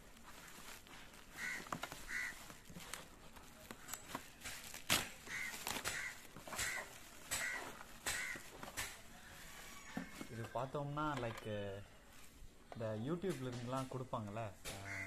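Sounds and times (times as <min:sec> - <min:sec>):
bubble wrap crinkling: 0:00.0 - 0:10.4.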